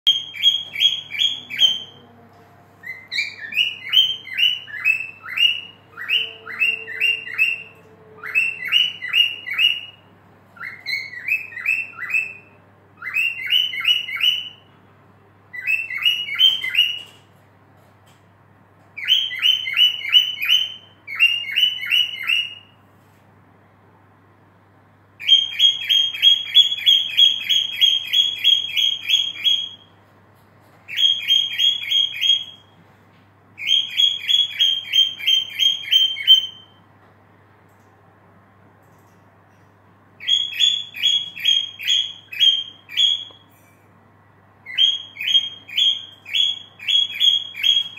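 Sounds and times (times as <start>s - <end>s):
cockatiel whistling: 0.1s - 2.0s, 2.8s - 14.7s, 15.5s - 17.2s, 19.0s - 22.8s, 25.2s - 29.9s, 30.9s - 32.7s, 33.6s - 36.8s, 40.2s - 43.4s, 44.6s - 47.9s.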